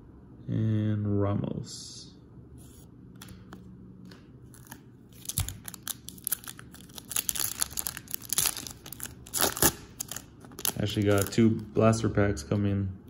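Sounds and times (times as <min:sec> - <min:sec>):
foil wrapper tearing and crinkling: 0:04.5 - 0:11.4.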